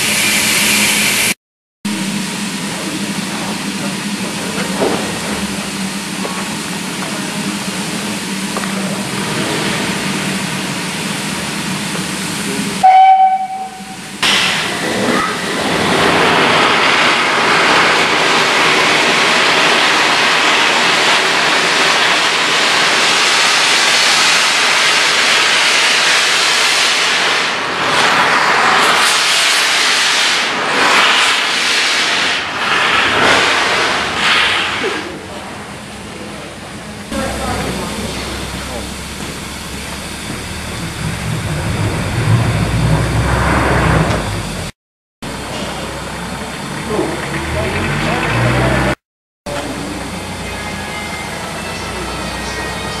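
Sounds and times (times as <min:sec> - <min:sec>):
steam locomotive hissing: 0:00.0 - 0:53.0
locomotive whistle blast: 0:12.8 - 0:14.3, 0:50.1 - 0:53.0.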